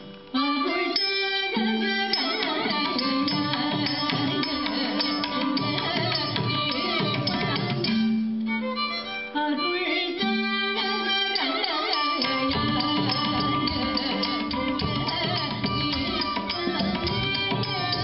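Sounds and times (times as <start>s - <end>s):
violin melody: 0.0s - 18.0s
drum accompaniment: 1.8s - 8.4s, 11.3s - 18.0s.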